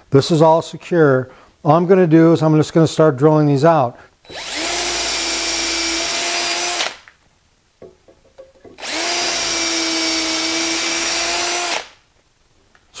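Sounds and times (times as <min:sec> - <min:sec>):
cordless drill boring into wood: 0:04.2 - 0:07.0, 0:08.8 - 0:12.0.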